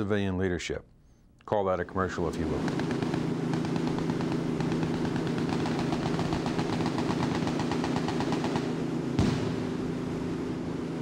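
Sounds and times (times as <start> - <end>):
boat engines running: 2.1 - 11.0
machine-gun fire: 2.6 - 9.9
sharp bang: 3.6 - 9.8.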